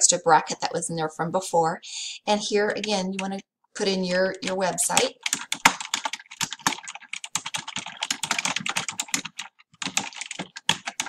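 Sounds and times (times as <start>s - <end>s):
computer keyboard typing: 4.3s - 11.0s.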